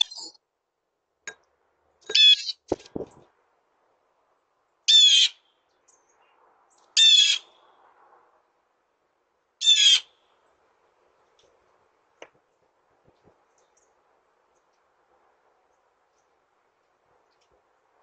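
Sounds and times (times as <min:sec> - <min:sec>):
blue jay calls: 0:00.0 - 0:00.4, 0:02.1 - 0:02.7, 0:04.9 - 0:05.5, 0:07.0 - 0:07.6, 0:09.6 - 0:10.2.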